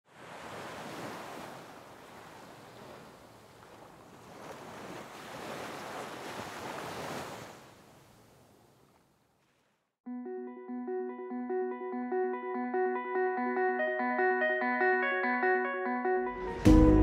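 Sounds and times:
sea waves washing in and back: 0.0 - 9.9.

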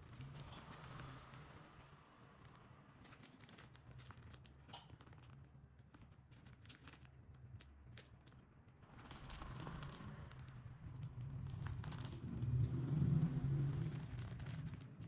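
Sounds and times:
plastic piping bag crinkling: 2.4 - 12.7, 13.6 - 15.0.

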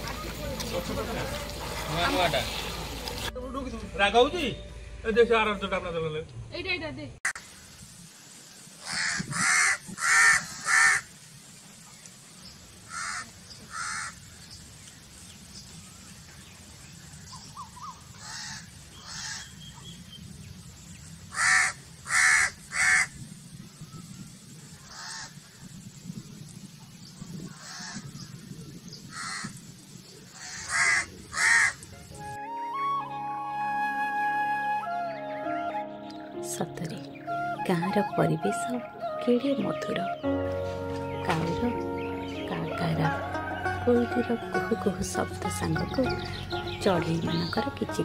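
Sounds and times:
crows cawing: 8.8 - 11.1, 12.9 - 14.2, 18.2 - 19.5, 21.3 - 23.2, 24.9 - 25.4, 27.6 - 28.0, 29.1 - 29.6, 30.4 - 31.8.

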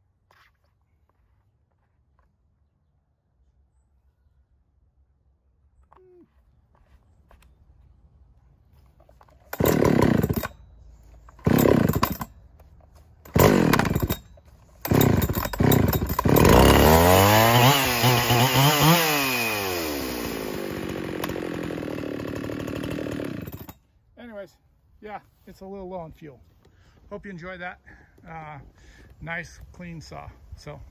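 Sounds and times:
chainsaw revving and idling: 9.5 - 10.6, 11.3 - 12.3, 13.2 - 23.8.

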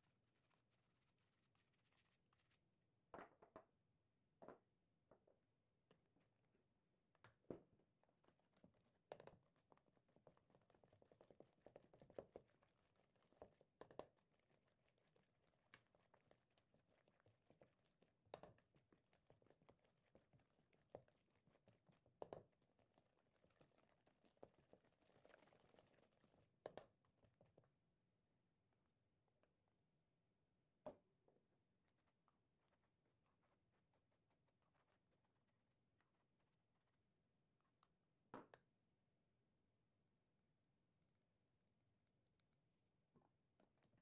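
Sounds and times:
whisk scraping dough: 8.2 - 26.6.

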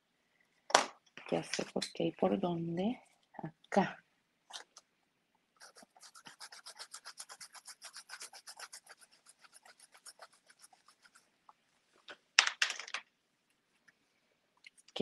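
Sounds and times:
paintbrush rubbing on paper: 5.6 - 11.4.

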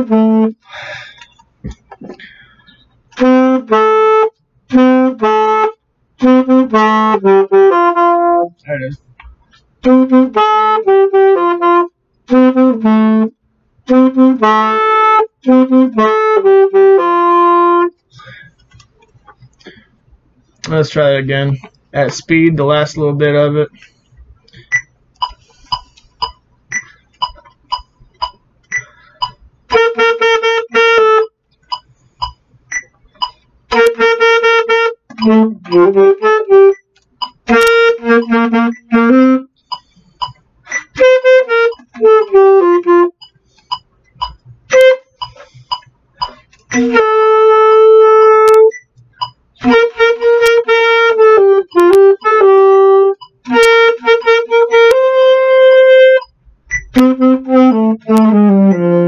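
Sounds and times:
alto saxophone playing: 0.0 - 1.3, 2.2 - 8.6, 9.8 - 18.6, 29.7 - 31.4, 33.7 - 39.6, 40.8 - 43.2, 44.3 - 45.8, 46.7 - 48.8, 49.6 - 59.0
short evenly spaced ticks: 24.0 - 59.0.

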